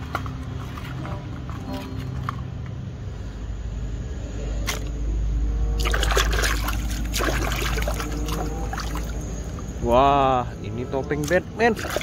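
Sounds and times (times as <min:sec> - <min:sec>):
hand sloshing and scrubbing in water: 0:05.8 - 0:09.7, 0:11.0 - 0:12.0
water splashing: 0:05.8 - 0:09.8, 0:11.1 - 0:12.0.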